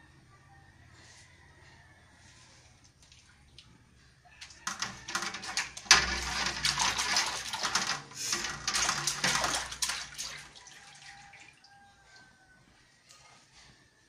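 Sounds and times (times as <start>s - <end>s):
water splashing in metal basin: 4.4s - 11.7s.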